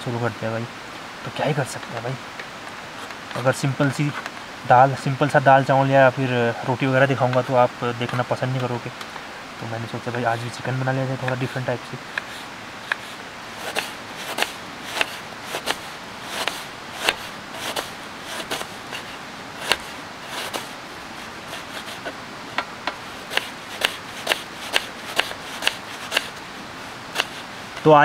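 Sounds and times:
knife chopping on cutting board: 13.6s - 20.7s, 23.3s - 26.3s.

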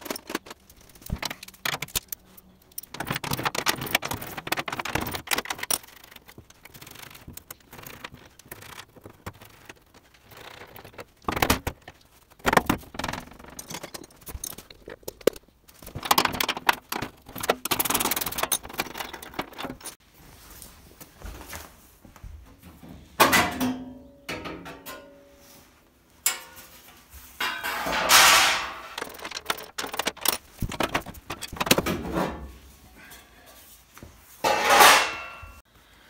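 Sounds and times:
hand tools clicking and rattling: 0.0s - 20.0s, 27.4s - 32.0s
sheet-metal panel clattering: 27.4s - 32.5s.

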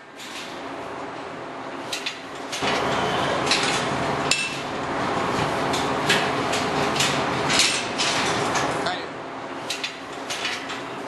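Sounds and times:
steady background noise: 0.0s - 11.0s
metal stalls clanking and rattling: 1.9s - 8.9s, 9.6s - 11.0s.

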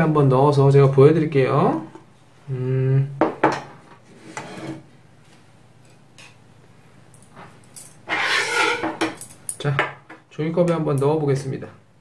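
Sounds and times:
ceramic bowl set on table: 7.8s - 10.0s.

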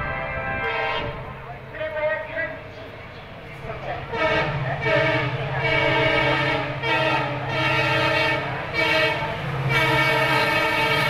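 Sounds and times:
locomotive horn blasts: 0.0s - 1.3s, 4.1s - 11.0s.

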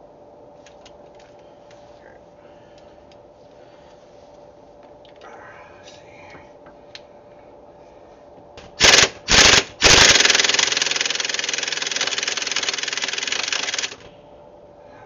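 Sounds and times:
impact wrench hammering: 8.6s - 14.1s.

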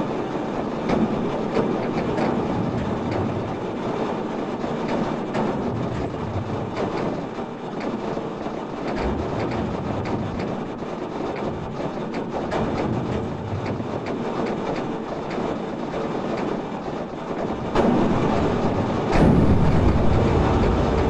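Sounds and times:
steady noise: 5.6s - 21.0s.

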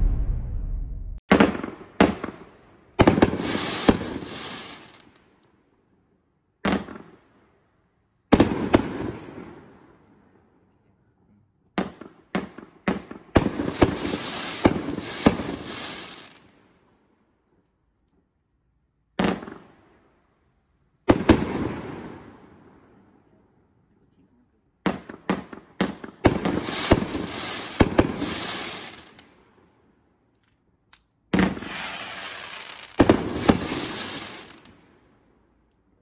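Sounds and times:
firework bangs: 0.0s - 5.1s, 11.8s - 16.4s, 21.1s - 22.5s, 24.9s - 29.3s, 31.3s - 34.8s
firework crackling: 3.0s - 5.2s, 13.4s - 16.5s, 25.0s - 29.4s, 31.4s - 34.8s.

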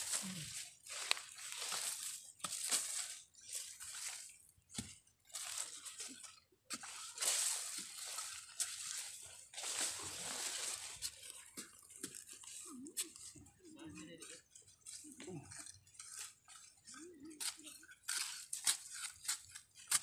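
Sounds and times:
leaves rustling: 0.0s - 4.3s, 6.9s - 11.5s
digging tool scraping dry soil: 0.0s - 6.0s, 6.7s - 11.6s, 17.4s - 20.0s.

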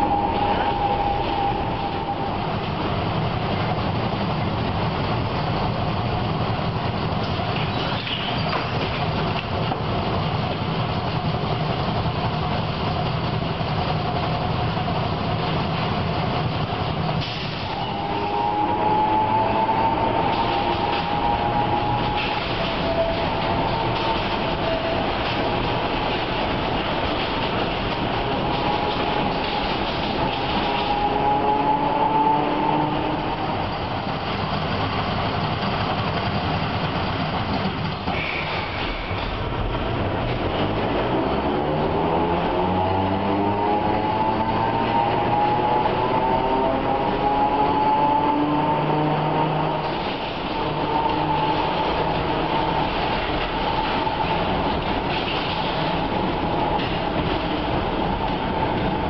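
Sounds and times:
high-pitched squeal: 0.0s - 3.7s, 17.1s - 36.2s, 38.0s - 39.6s, 40.6s - 59.0s
tram low hum and rumble: 0.0s - 59.0s.

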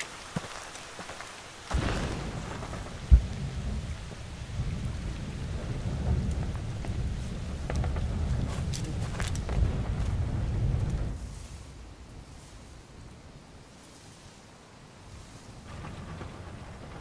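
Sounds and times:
steady rain hiss: 0.0s - 17.0s
deep thunder rumble: 1.7s - 12.0s, 15.6s - 17.0s.

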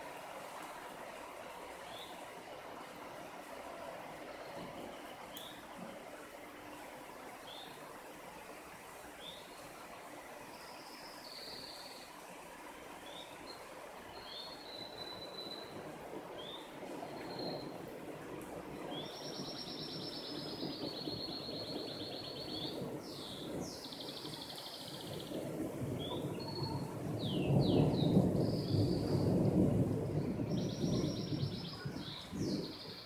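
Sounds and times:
thunder rumbling: 15.2s - 33.0s.

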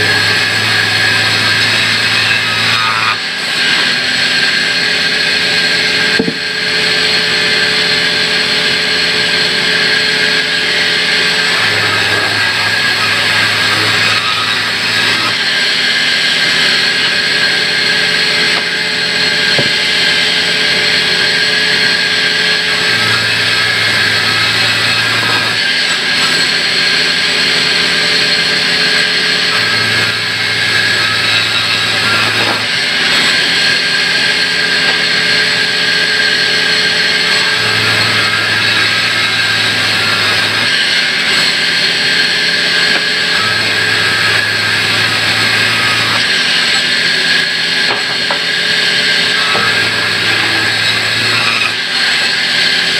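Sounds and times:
bandsaw cutting timber: 0.0s - 52.9s.

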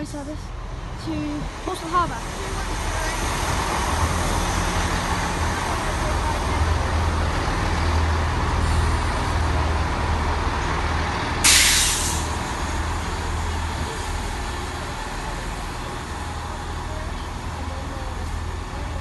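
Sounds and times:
train engine hum: 0.0s - 19.0s
brake air hiss: 11.4s - 12.5s.

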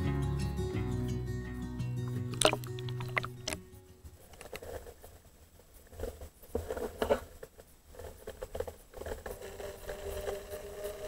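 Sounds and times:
soft underwater taps and clicks: 2.3s - 3.6s.

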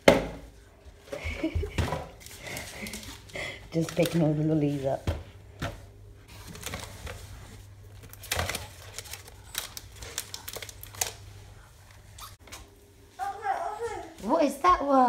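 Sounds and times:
foil wrappers crinkling: 2.2s - 4.9s, 6.3s - 12.4s.

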